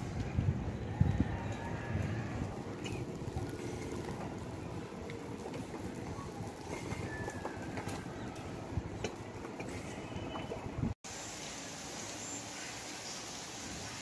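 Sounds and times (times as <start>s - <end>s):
wind rumble on microphone: 0.0s - 4.1s.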